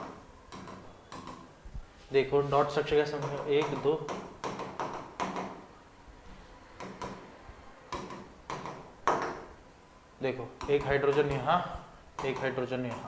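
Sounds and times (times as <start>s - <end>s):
pen tapping on board: 0.0s - 1.5s, 3.1s - 5.6s, 6.8s - 7.2s, 7.9s - 9.5s, 12.2s - 13.0s.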